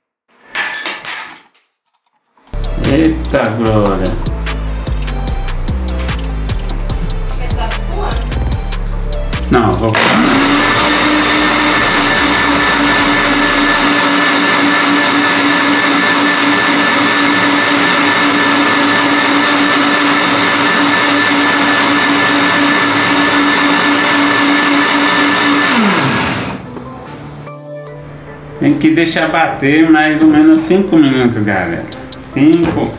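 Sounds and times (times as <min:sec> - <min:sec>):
blender motor running: 0:09.8 - 0:26.7.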